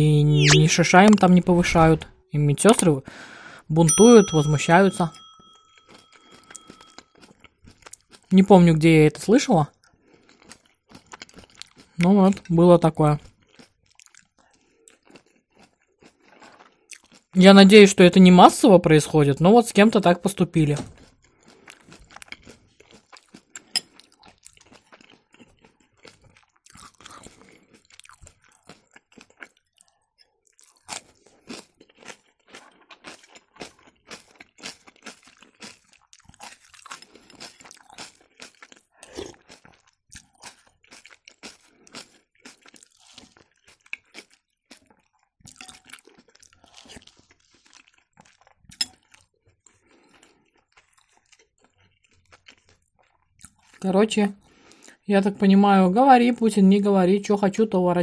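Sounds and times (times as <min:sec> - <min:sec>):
person chewing crunchy salad: 0:05.8 - 0:08.3, 0:09.7 - 0:12.6, 0:13.2 - 0:17.4, 0:21.0 - 0:53.8, 0:54.4 - 0:55.0.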